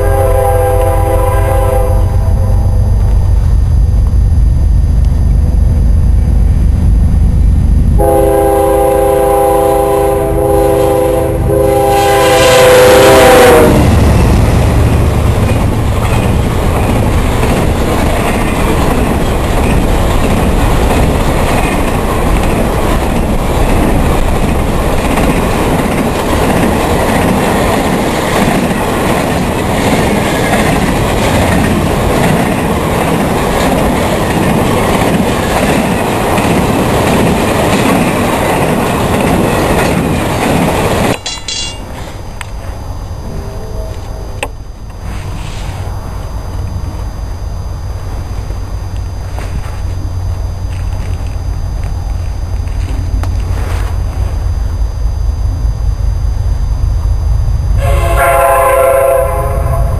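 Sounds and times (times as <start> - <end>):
locomotive air horn: 0.0 - 2.8, 8.0 - 13.9, 57.8 - 59.9
train wheels clacking over rail joints: 15.4 - 42.2.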